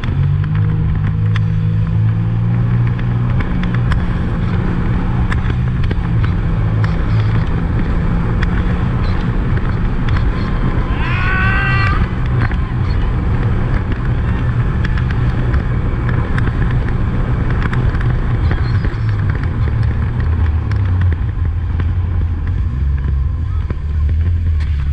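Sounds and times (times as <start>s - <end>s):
wind on microphone: 3.7s - 23.6s
high-pitched cry: 10.8s - 12.2s.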